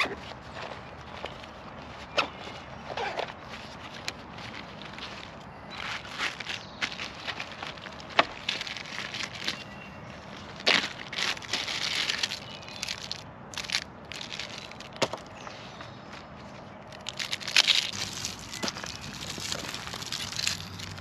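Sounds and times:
plastic packets crinkling: 3.5s - 9.7s, 10.4s - 15.3s, 16.9s - 21.0s.

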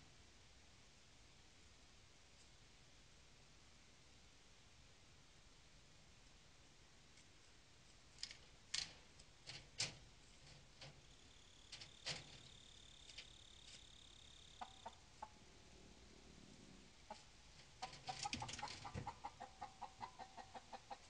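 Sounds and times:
claws clicking on wire mesh: 8.1s - 14.7s, 17.6s - 19.1s
hen clucking: 12.1s - 15.5s, 17.0s - 21.0s.

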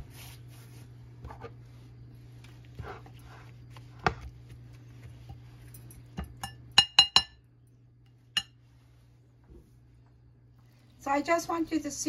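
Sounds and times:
spatula stirring in china bowl: 0.0s - 7.3s
spatula clinking on bowl: 5.7s - 7.4s.

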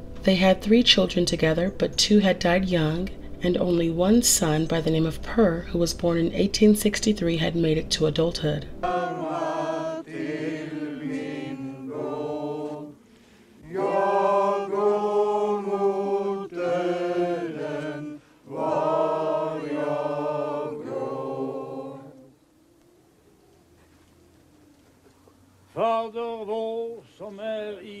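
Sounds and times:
congregation singing a hymn: 8.6s - 22.4s.

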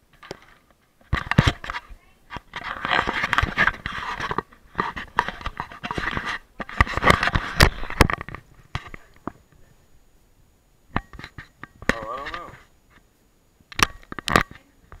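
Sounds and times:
rubbing against microphone: 1.0s - 9.8s, 11.0s - 13.1s.

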